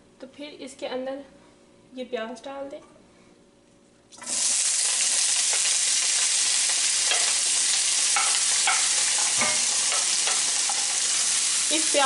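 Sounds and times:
onions sizzling in hot oil: 0:04.2 - 0:12.0.

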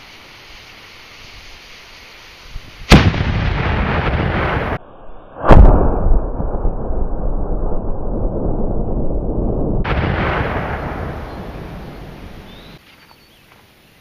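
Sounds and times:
cannon blast: 0:02.9 - 0:04.8, 0:05.4 - 0:12.8
rolling echo: 0:09.8 - 0:12.8.

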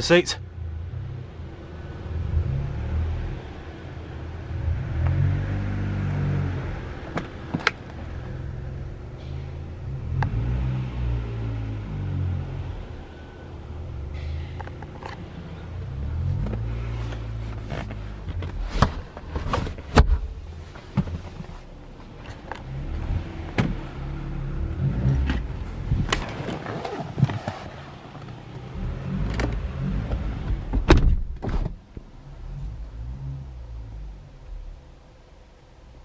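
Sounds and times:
seatback clicking and knocking: 0:07.0 - 0:08.0, 0:16.4 - 0:21.6, 0:23.4 - 0:23.9, 0:25.1 - 0:28.6, 0:29.2 - 0:32.1
low rumble: 0:22.6 - 0:26.4.

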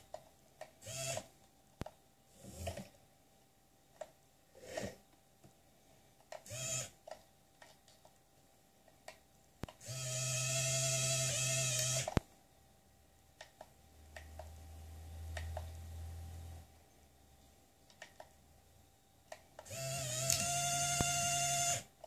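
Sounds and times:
small electric motor whine: 0:00.8 - 0:01.3, 0:06.5 - 0:06.9, 0:09.8 - 0:12.2, 0:19.6 - 0:21.9.

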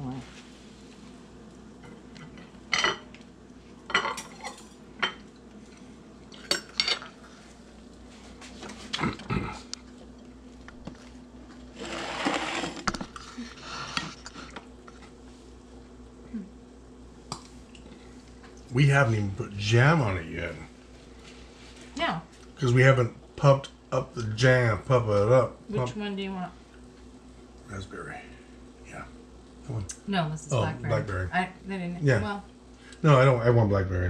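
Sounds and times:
faint steady hum: 0:00.0 - 0:34.0
dishes and utensils clinking: 0:03.9 - 0:05.2.

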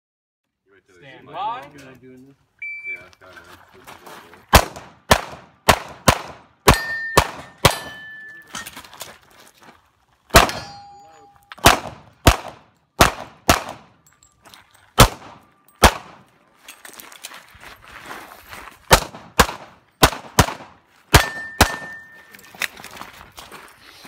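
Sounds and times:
pistol shots: 0:04.5 - 0:08.2, 0:10.3 - 0:10.9, 0:11.6 - 0:14.0, 0:15.0 - 0:16.3, 0:18.9 - 0:22.2
steel target ringing: 0:06.7 - 0:08.6, 0:10.4 - 0:11.6, 0:21.2 - 0:22.3.

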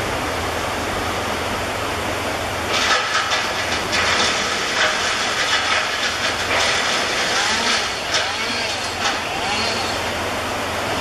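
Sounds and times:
steam locomotive chuffing: 0:02.7 - 0:10.2.

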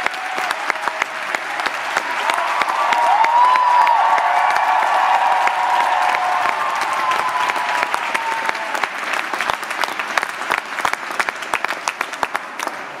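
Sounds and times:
audience cheering: 0:00.0 - 0:09.2
audience applauding: 0:00.0 - 0:13.0.

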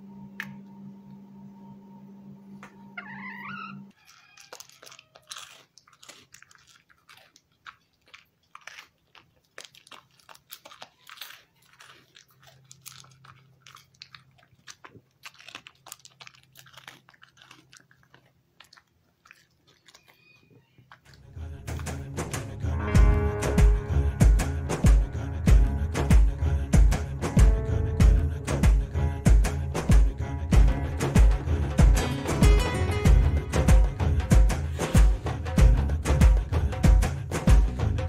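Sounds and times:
dog crunching treats: 0:03.9 - 0:22.1.

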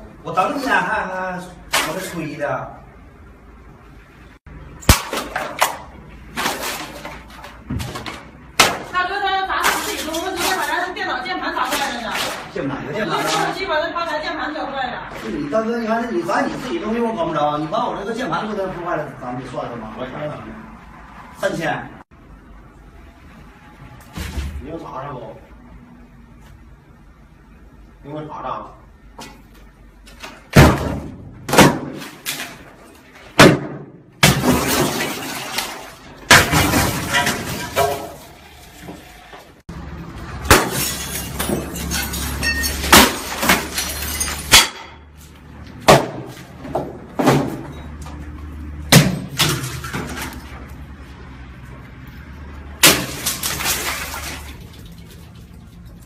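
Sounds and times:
glass breaking and falling: 0:04.8 - 0:05.8, 0:34.2 - 0:38.8, 0:40.5 - 0:45.0, 0:48.9 - 0:50.4, 0:52.8 - 0:54.6.

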